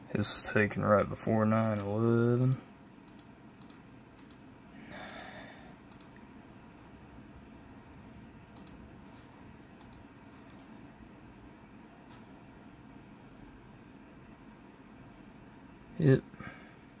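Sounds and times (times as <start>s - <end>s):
faint steady hum: 0.0s - 17.0s
computer mouse clicking: 1.6s - 4.4s, 5.9s - 6.2s, 8.5s - 8.9s, 9.8s - 10.1s.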